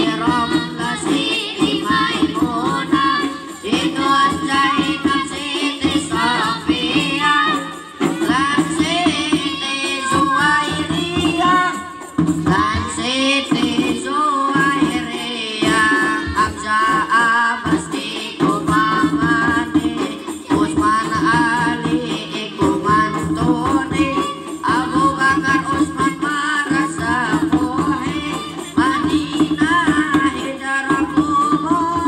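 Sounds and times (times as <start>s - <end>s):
frame drums beating: 0.0s - 32.0s
person singing devotional melody: 0.0s - 32.0s.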